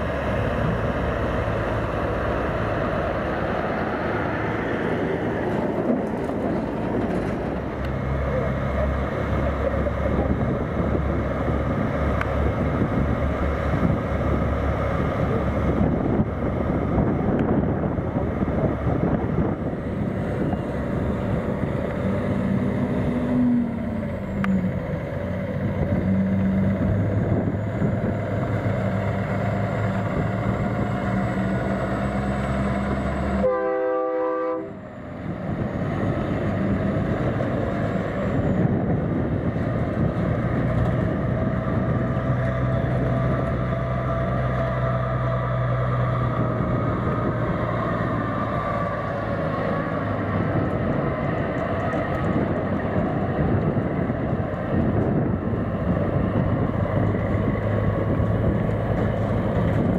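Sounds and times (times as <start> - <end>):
truck diesel engines: 0.0 - 59.9
wind noise on microphone: 9.2 - 24.4, 25.4 - 33.5, 34.5 - 59.9
truck horn blast: 33.3 - 34.8.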